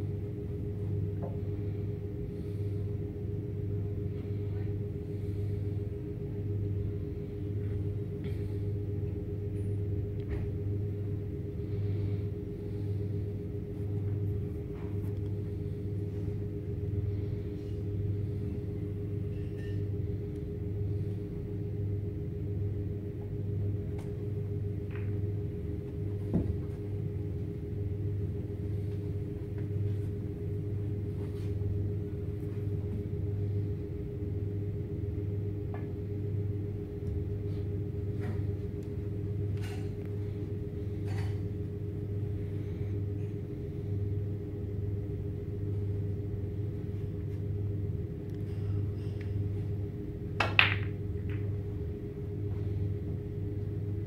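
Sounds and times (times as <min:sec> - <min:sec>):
low room hum: 0:00.0 - 0:54.0
snooker balls clicking: 0:50.3 - 0:52.0.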